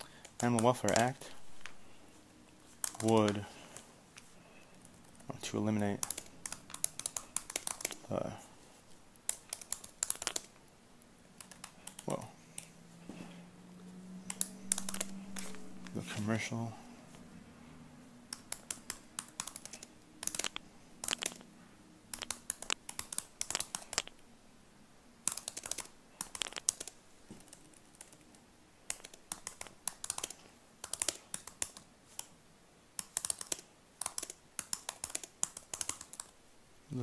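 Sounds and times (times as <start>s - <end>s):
typing on computer keyboard: 0.1s - 1.8s, 2.8s - 3.8s, 5.0s - 8.1s, 9.2s - 10.6s, 11.4s - 12.7s, 14.3s - 15.9s, 18.3s - 21.5s, 22.1s - 24.1s, 25.2s - 32.3s, 33.0s - 36.4s.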